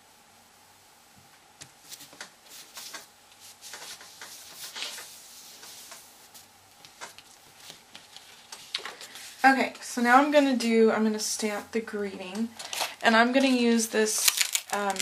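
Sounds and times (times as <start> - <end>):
palm brushing paper: 1.8 - 6.5
paper rustling: 1.8 - 9.4, 12.6 - 15.0.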